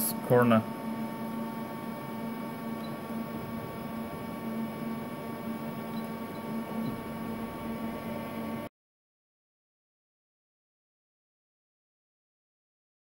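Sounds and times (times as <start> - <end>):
machine hum with high whine: 0.0 - 8.7.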